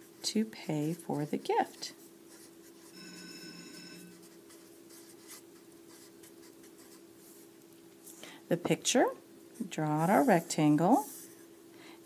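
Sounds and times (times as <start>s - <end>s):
low steady hum: 0.0s - 12.0s
faint steady tone: 2.0s - 5.1s.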